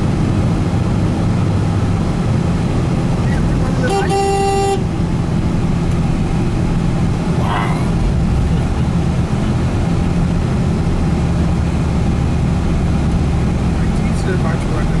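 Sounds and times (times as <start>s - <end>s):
road noise: 0.0s - 15.0s
vehicle engine drone: 0.0s - 15.0s
car horn honk: 3.8s - 5.0s.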